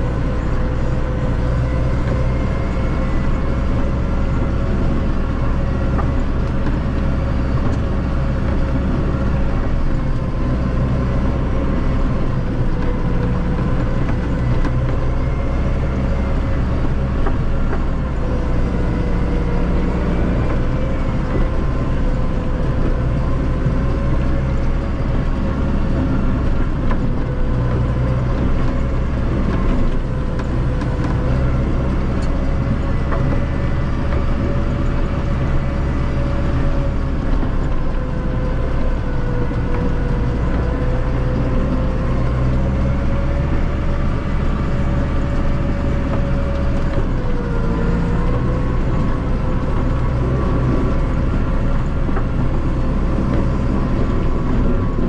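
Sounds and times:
tractor diesel engine running: 0.0 - 55.0
wavering engine whine: 0.0 - 55.0.

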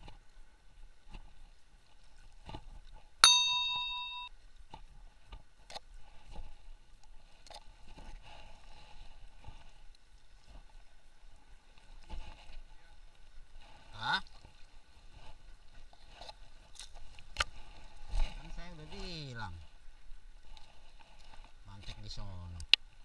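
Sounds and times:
bright bell ding: 3.2 - 4.3.

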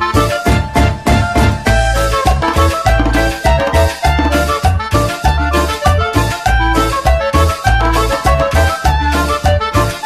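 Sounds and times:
upbeat background music: 0.0 - 10.0.

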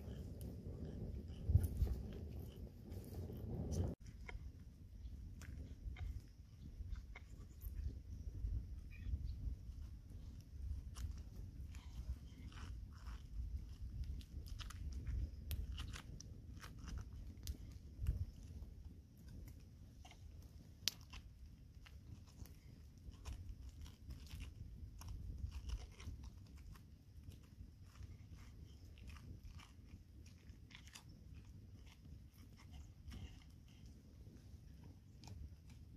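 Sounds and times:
spoon scraping pineapple flesh: 5.0 - 35.9.

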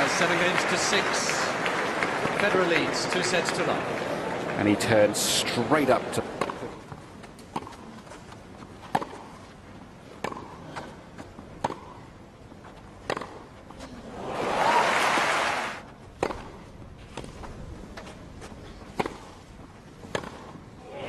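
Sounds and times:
crowd noise: 0.0 - 6.9, 13.8 - 15.9
tennis ball hit by racket: 10.2 - 10.6, 13.0 - 13.4, 19.0 - 19.4, 20.1 - 20.6.

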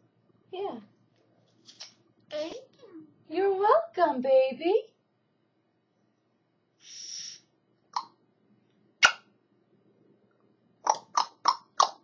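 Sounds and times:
parrot breathy hiss: 6.8 - 7.5.

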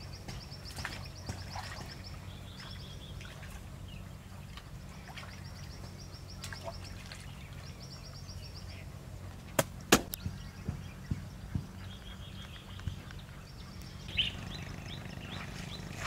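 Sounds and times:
birds chirping in trills: 0.0 - 16.0
low steady hum: 0.0 - 16.0
sharp knocks: 9.6 - 11.7.

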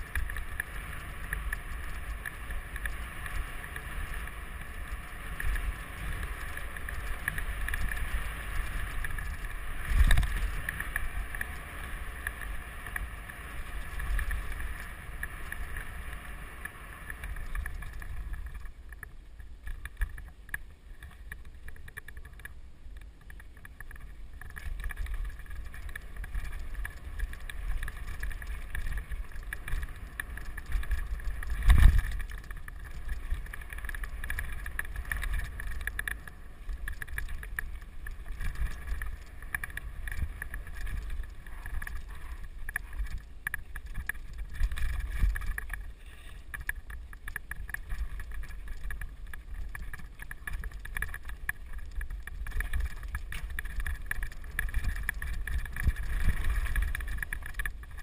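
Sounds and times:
wind on microphone: 0.0 - 16.3, 24.6 - 58.0
tyres over rough ground: 0.0 - 58.0
bike knocks and rattles: 23.1 - 58.0.

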